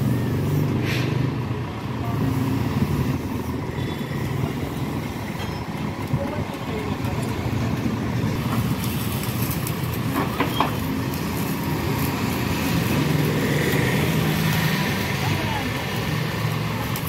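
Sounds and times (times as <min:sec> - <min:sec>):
diesel engine idling: 0:00.0 - 0:08.6.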